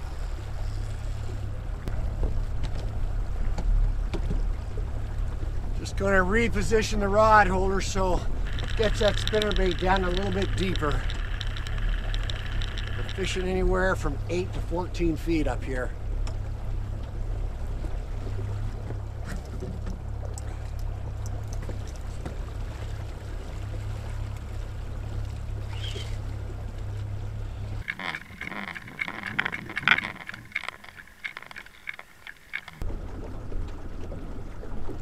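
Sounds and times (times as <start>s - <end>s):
muffled underwater water movement: 0.0s - 35.0s
outboard motor humming: 0.0s - 35.0s
clicks and knocks: 8.4s - 13.6s, 27.8s - 32.8s.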